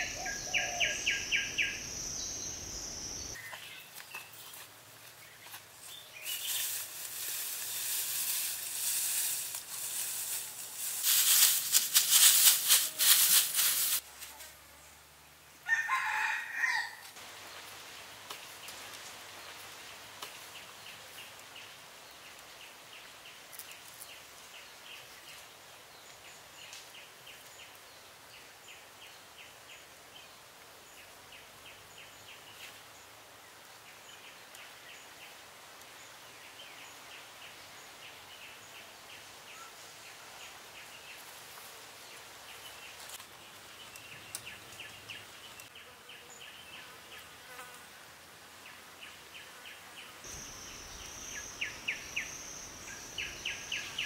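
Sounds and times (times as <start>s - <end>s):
insect chirping in pulses: 0.0s - 3.4s, 50.3s - 54.0s.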